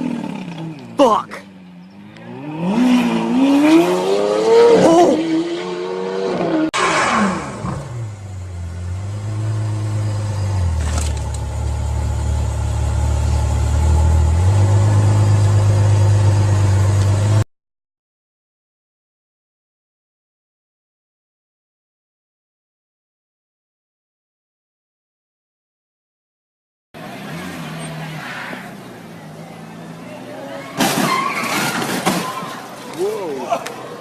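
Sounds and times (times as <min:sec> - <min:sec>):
car engine revving: 0:01.8 - 0:17.4.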